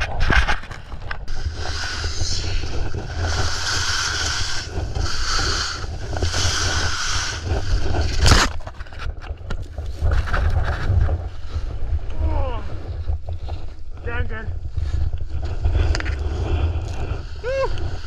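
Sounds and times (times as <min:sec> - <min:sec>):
wind rumble on microphone: 0:00.0 - 0:18.0
ski edges scraping snow: 0:00.2 - 0:09.0.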